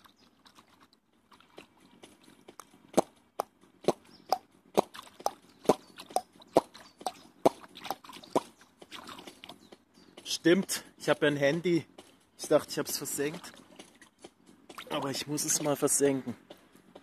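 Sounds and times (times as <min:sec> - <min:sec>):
water plopping and splashing: 0:00.0 - 0:02.2, 0:03.9 - 0:09.6.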